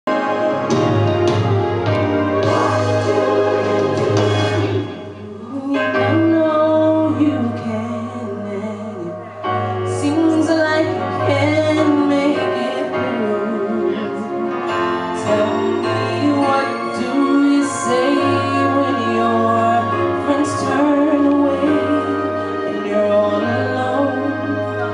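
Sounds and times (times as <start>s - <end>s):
instrumental accompaniment: 0.1s - 24.9s
woman singing gospel: 9.9s - 14.3s, 15.2s - 24.9s.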